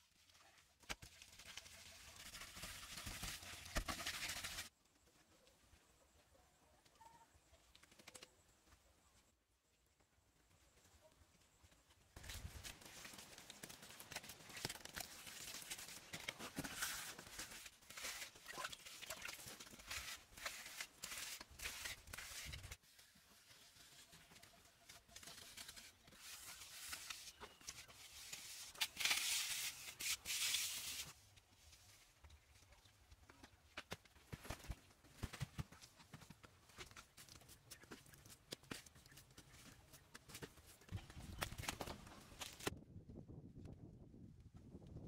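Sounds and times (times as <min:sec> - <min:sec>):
hands scraping wet mud plaster: 0:14.1 - 0:22.8
bamboo strip rubbing wet floor: 0:15.4 - 0:24.1.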